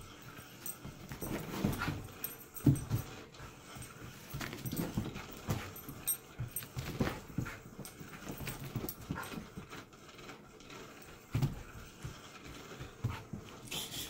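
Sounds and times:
puppy paws thudding on carpet: 0:00.6 - 0:03.2, 0:03.8 - 0:09.7.

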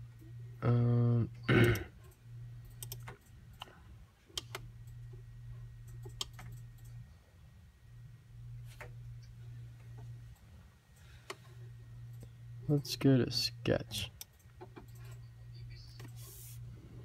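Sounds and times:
faint low hum: 0:00.0 - 0:17.0
computer mouse clicks: 0:02.0 - 0:03.7, 0:04.3 - 0:05.0, 0:05.8 - 0:07.0.

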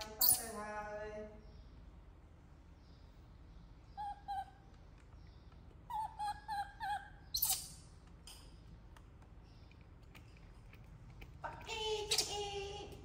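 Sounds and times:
high-pitched animal calls: 0:03.9 - 0:04.7, 0:05.8 - 0:07.8.

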